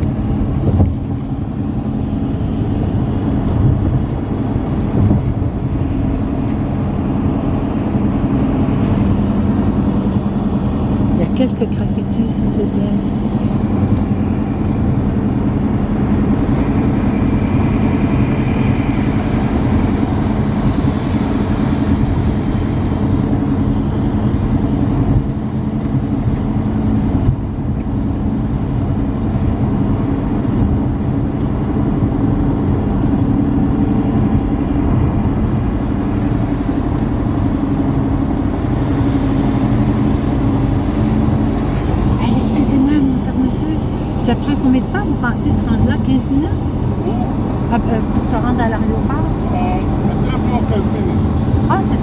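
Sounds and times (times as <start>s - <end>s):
car engine hum: 0.0s - 52.0s.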